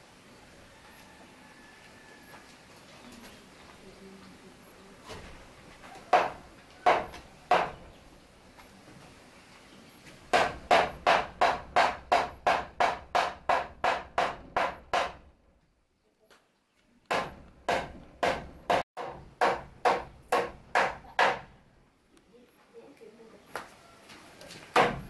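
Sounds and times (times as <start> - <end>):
hammer driving nails into wood: 10.3 - 15.2, 17.1 - 21.5, 24.8 - 25.0.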